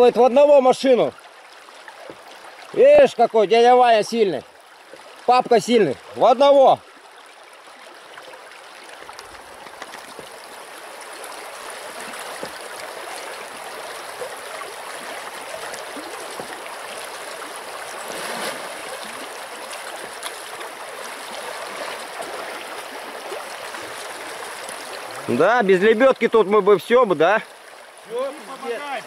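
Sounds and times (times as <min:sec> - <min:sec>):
river rushing: 0:08.7 - 0:29.0.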